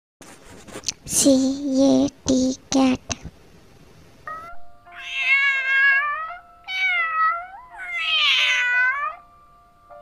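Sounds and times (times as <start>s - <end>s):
cat meowing: 4.3s - 9.2s.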